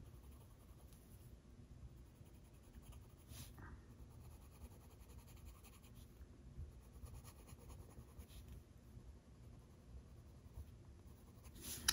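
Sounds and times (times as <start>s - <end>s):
colored pencil scratching on paper: 0.0s - 1.2s, 2.0s - 6.1s, 6.8s - 8.6s, 9.4s - 11.9s.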